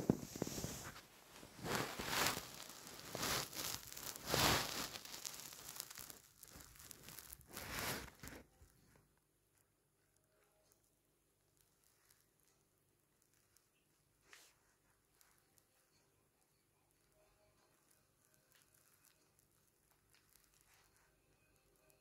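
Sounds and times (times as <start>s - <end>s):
rustling crinkling noise: 0.0s - 22.0s.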